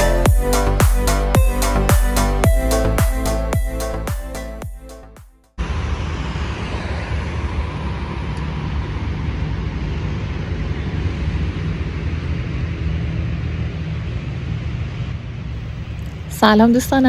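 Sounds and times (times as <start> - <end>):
background music: 0.0 - 5.5
road traffic rumble: 5.6 - 17.0.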